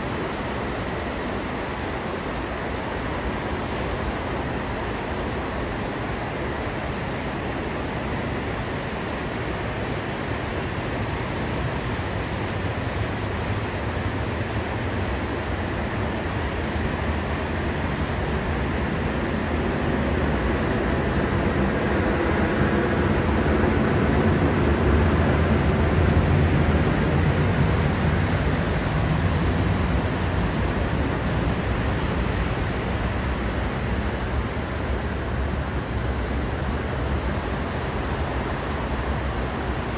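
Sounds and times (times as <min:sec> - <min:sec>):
ocean surf breaking on beach: 0:00.0 - 0:39.9.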